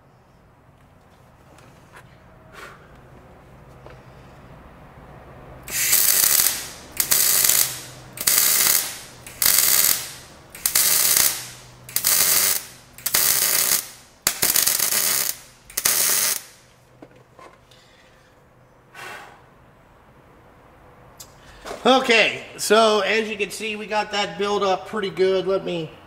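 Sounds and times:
welding arc crackling: 5.6 - 16.7.

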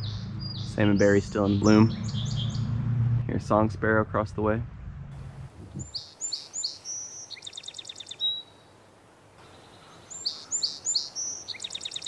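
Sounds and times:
sparrow singing: 0.0 - 3.4, 5.7 - 8.7, 9.4 - 12.0.

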